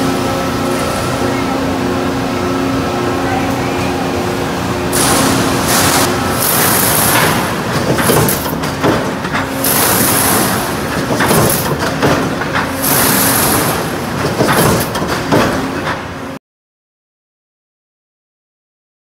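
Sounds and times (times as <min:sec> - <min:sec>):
metal sheet feeding through rollers: 0:00.0 - 0:16.4
machine knocks: 0:06.4 - 0:16.1.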